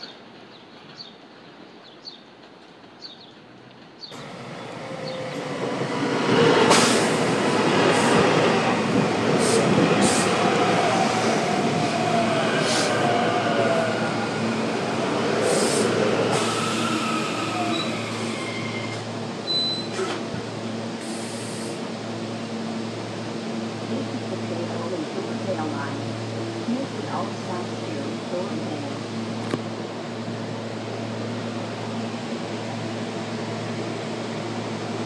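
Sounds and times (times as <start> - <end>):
train wheels rumbling on rail: 0.0 - 35.0
sharp clicks of train wheels: 0.2 - 10.6.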